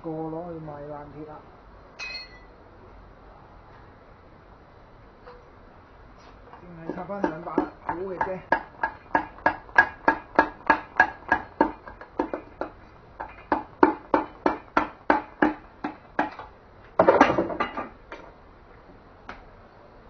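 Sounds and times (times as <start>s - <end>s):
metallic tapping: 6.5s - 16.5s.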